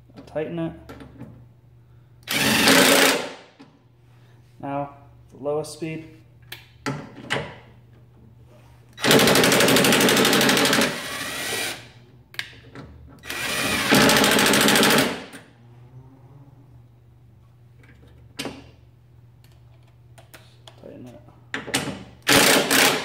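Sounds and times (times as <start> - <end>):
impact driver rattling: 9.0 - 11.8, 13.2 - 15.3, 22.2 - 23.0.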